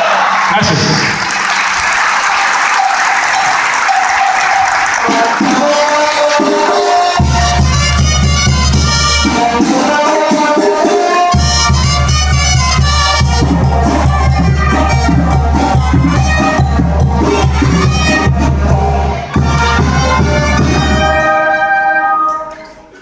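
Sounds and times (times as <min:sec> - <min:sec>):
crowd applauding: 0:00.0 - 0:07.9.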